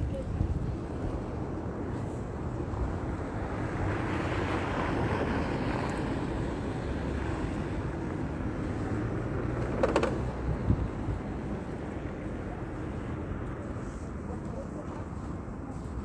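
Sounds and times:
traffic rumble: 0:00.0 - 0:16.0
car tyres on slush: 0:01.1 - 0:09.6.

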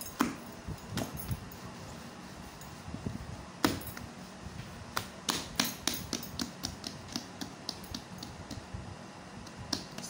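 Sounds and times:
hands slapping dough: 0:03.6 - 0:08.7, 0:09.4 - 0:10.0.

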